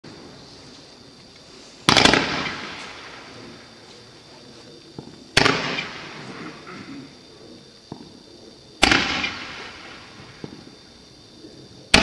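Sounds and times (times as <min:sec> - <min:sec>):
firework hiss: 0:00.1 - 0:12.0
firework cracks: 0:01.3 - 0:03.8, 0:04.9 - 0:06.7, 0:08.8 - 0:10.8.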